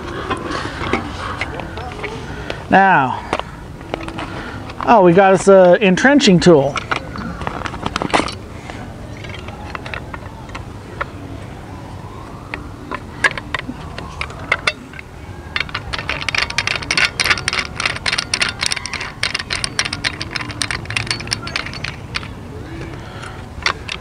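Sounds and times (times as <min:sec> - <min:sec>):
plastic clicks and rattles: 0:09.2 - 0:10.6, 0:12.5 - 0:24.0
rapid ratcheting clicks: 0:15.6 - 0:22.4.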